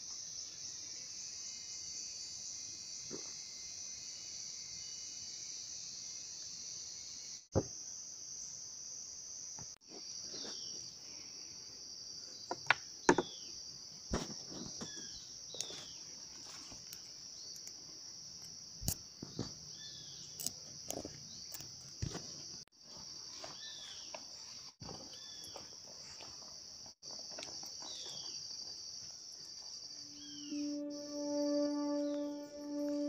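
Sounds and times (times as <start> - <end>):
insect chorus drone: 0.0 - 33.0.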